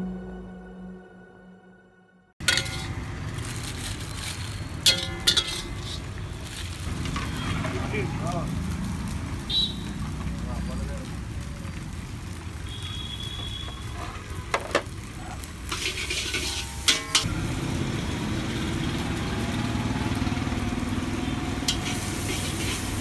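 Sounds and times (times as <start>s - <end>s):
metal strainer clinking on wok: 2.4s - 3.0s, 4.8s - 6.1s
chicken sizzling in hot oil: 2.4s - 23.0s.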